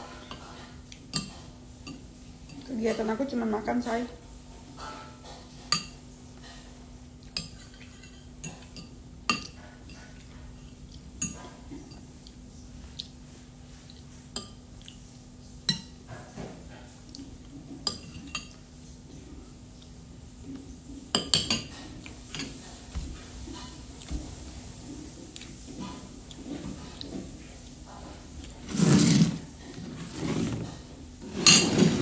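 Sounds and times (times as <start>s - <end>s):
cutlery clinking on a plate: 0.2s - 3.0s, 4.8s - 10.5s, 17.7s - 18.6s, 21.1s - 23.8s, 31.3s - 32.0s.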